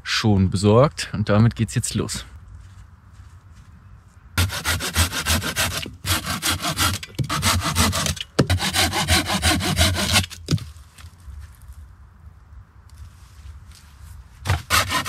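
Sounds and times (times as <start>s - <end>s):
hand saw cutting wood: 4.4s - 10.4s, 14.4s - 15.0s.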